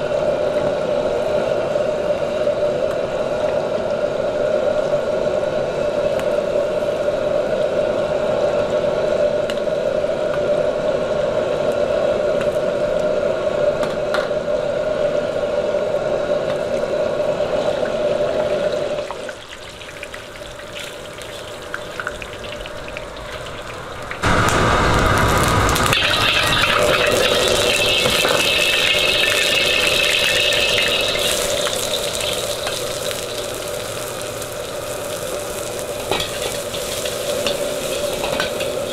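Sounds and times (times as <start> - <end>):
food deep-frying in hot oil: 16.4 - 38.9
oil bubbling with light crackles: 16.4 - 38.9
loud rushing noise: 24.2 - 29.2.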